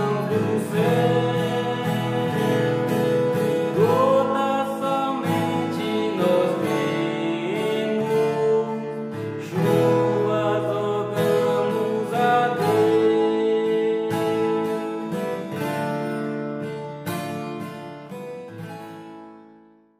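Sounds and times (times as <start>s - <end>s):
man singing a hymn: 0.0s - 15.2s
strummed acoustic guitar: 0.0s - 19.9s.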